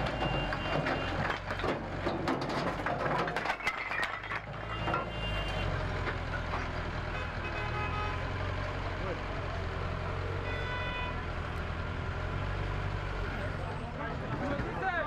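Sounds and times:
heavy vehicle engine running: 0.0s - 15.0s
breaking wood and debris: 0.5s - 5.0s.

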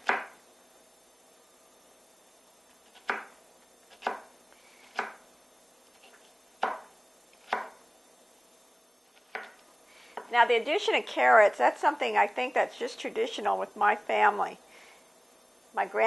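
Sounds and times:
knife chopping on wooden board: 0.0s - 0.4s, 2.7s - 5.2s, 5.9s - 7.8s, 9.1s - 9.6s.

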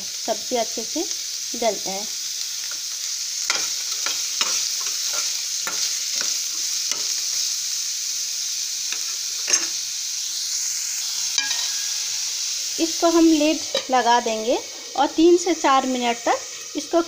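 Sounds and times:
vegetables sizzling in oil: 0.0s - 17.0s
spoon scraping pan: 3.5s - 7.5s, 8.9s - 9.8s, 11.3s - 12.2s, 13.3s - 14.9s.

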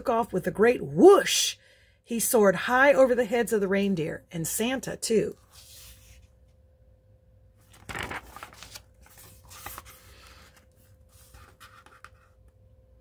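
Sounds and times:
page turning paper swish: 5.4s - 6.3s, 7.6s - 12.4s
paper rustling and tapping: 7.7s - 10.7s.

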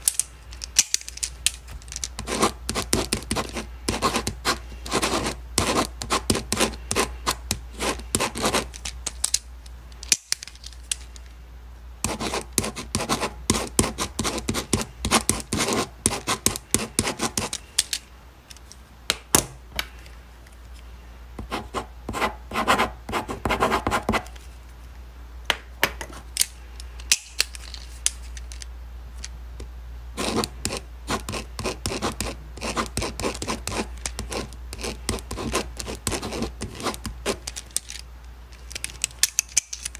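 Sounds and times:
pen scratching on paper: 2.2s - 8.8s, 12.0s - 17.6s, 21.4s - 24.3s, 30.2s - 37.4s.

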